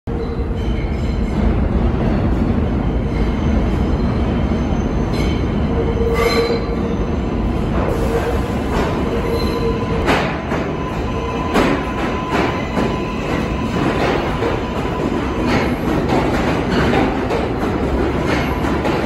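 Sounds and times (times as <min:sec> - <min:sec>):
subway train rumbling on rails: 0:00.1 - 0:19.0
high wheel squeals: 0:09.1 - 0:10.0.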